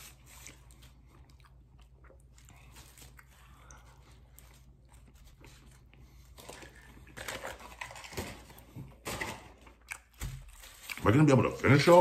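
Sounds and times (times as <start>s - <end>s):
quiet chewing: 0.0s - 7.2s
food packaging crinkling: 2.6s - 12.0s.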